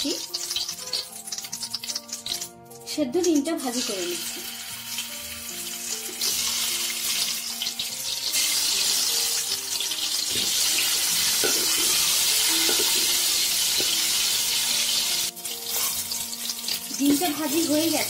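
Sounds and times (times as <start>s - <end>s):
hot oil sizzling in pan: 0.0s - 18.0s
spoon knocking against pan: 10.3s - 14.2s.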